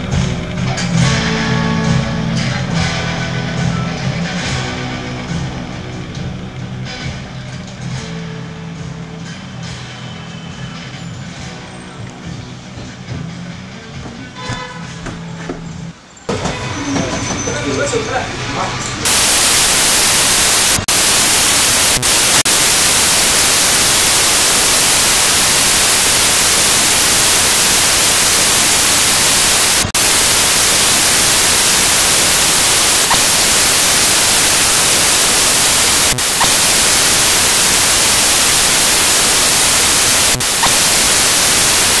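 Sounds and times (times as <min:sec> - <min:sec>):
static hiss: 0:19.0 - 0:42.0.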